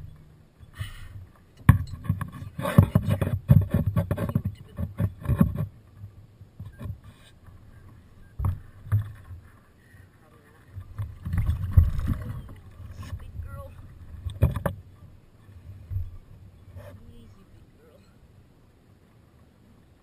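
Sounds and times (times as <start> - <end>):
knocking and clattering on kayak: 0.0 - 9.6, 10.7 - 15.2.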